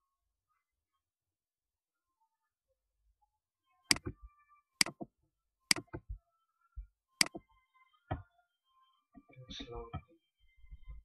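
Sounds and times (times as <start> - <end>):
computer mouse buttons clicking: 3.9 - 4.2, 4.8 - 5.0, 5.7 - 6.1, 7.2 - 7.4.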